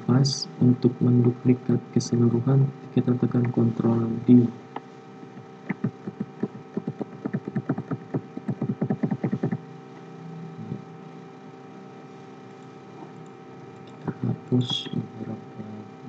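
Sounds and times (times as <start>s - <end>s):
steady hum: 0.0s - 16.0s
computer keyboard keys clicking: 5.7s - 9.6s.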